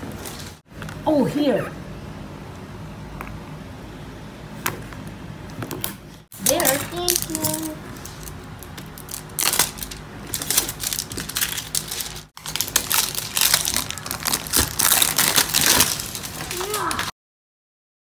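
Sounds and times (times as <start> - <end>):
plastic wrap crinkling: 6.4 - 17.1.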